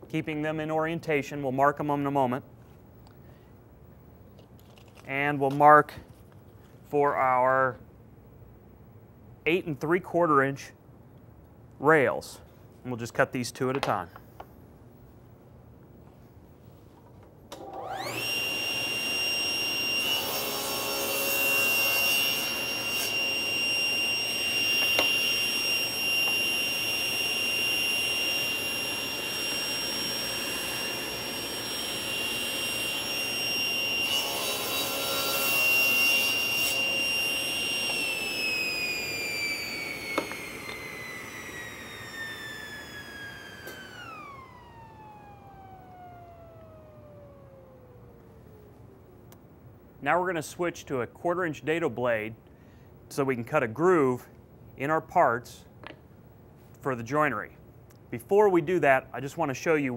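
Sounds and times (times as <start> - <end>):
table saw whining: 17.5 - 48.8
table saw cutting wood: 17.6 - 47.6.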